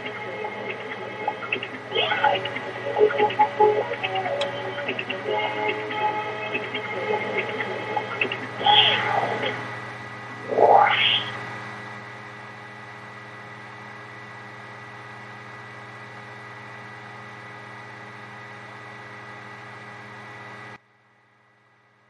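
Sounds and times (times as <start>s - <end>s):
faint high whine: 0.0s - 12.6s
steady electrical hum: 0.0s - 22.0s
short rising sweep: 10.4s - 11.5s.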